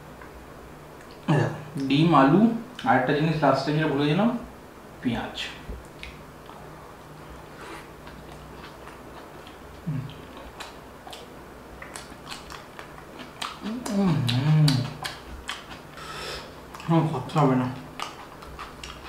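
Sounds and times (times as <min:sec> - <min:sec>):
wet mouth clicks and smacks: 0:05.8 - 0:06.6
man chewing food: 0:05.8 - 0:19.0.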